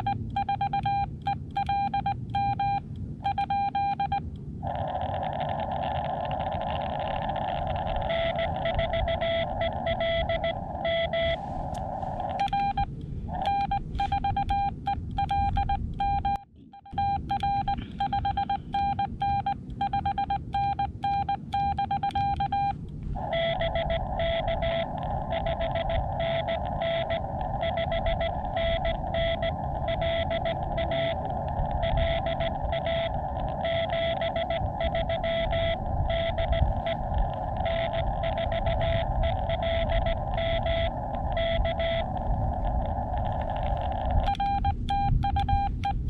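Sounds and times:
morse code tones: 0.0 - 46.0
radio band hiss: 4.6 - 14.3, 17.6 - 18.7, 23.0 - 44.9.

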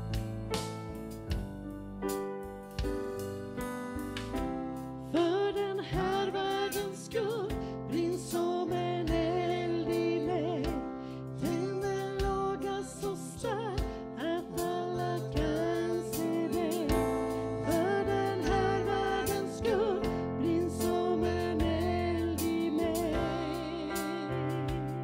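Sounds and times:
drum beats: 0.0 - 25.0
person singing with vibrato: 5.1 - 25.0.

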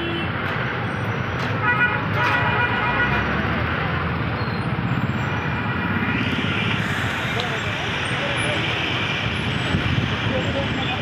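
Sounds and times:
dense road traffic: 0.0 - 11.0
vehicle horn: 1.6 - 3.2.

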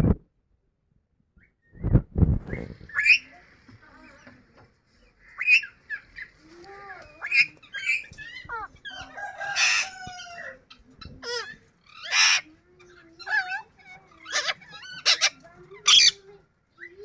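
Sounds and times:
parakeet harsh squawk: 11.2 - 12.5, 13.2 - 16.2.

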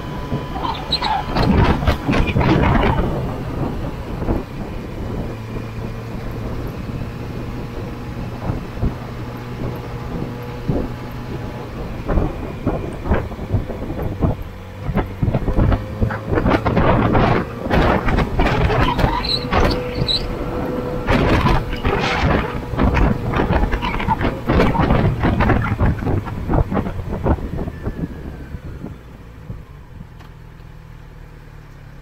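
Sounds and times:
wind noise on microphone: 0.0 - 30.2
motorcycle engine running: 0.0 - 30.4.

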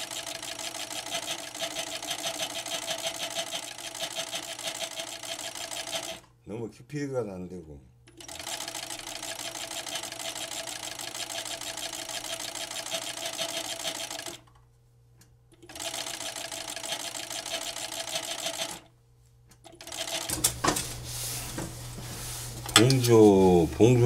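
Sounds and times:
sewing machine stitching: 0.0 - 6.2, 8.2 - 14.4, 15.6 - 18.9, 19.7 - 20.6.

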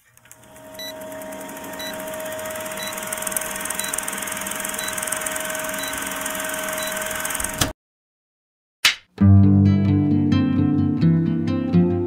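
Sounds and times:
film projector rattle and whir: 0.0 - 7.7.

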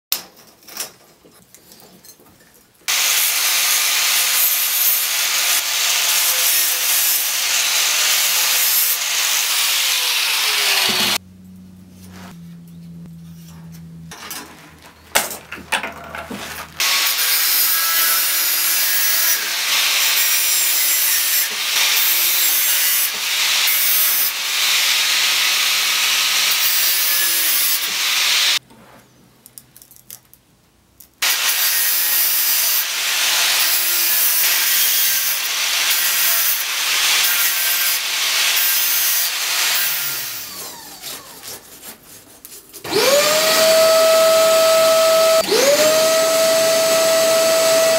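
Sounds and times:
hand saw rasping on steel: 33.6 - 43.7.

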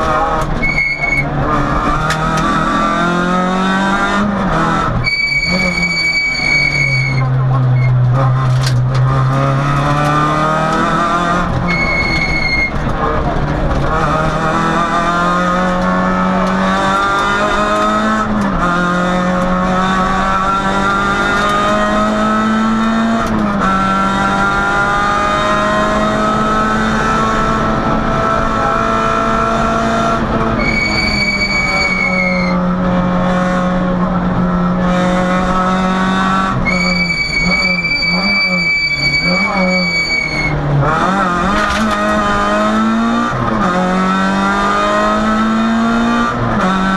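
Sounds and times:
rally car engine revving: 0.0 - 46.9
tyre squeals: 0.6 - 1.3, 5.0 - 8.0, 11.6 - 12.8, 30.6 - 32.6, 36.6 - 40.6.

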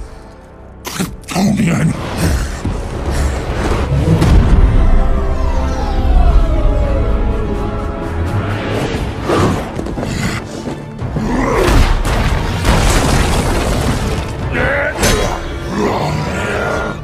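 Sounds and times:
dramatic film score: 0.0 - 17.0
debris smashing: 11.7 - 15.5.

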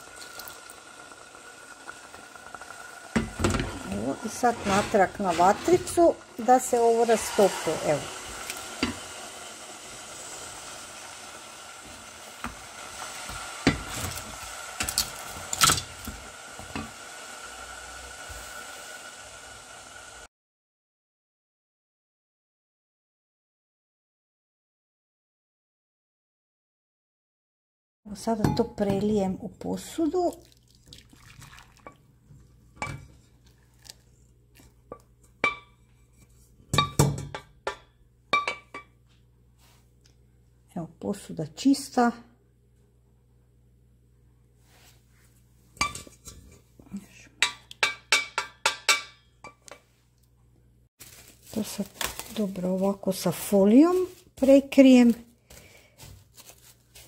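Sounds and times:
utensil clinking against cooking pot: 47.4 - 49.8.

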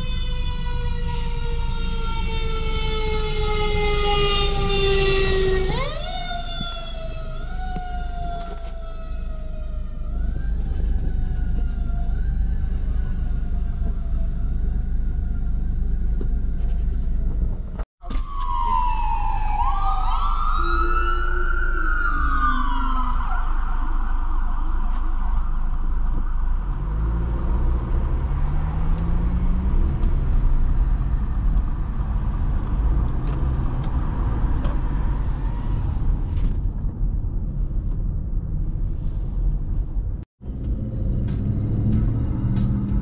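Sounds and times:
fire truck siren wailing: 0.0 - 16.6, 18.0 - 30.4
second siren: 0.0 - 17.3, 18.0 - 30.0.

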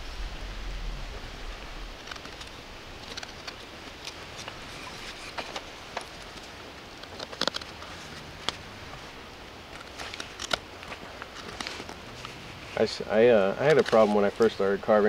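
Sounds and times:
knife scraping wood: 3.0 - 5.7.

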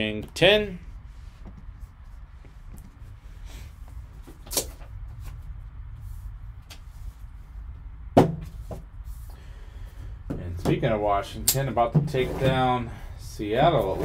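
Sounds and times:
steady low hum: 0.0 - 14.0
soft taps and rustles: 1.2 - 3.2.

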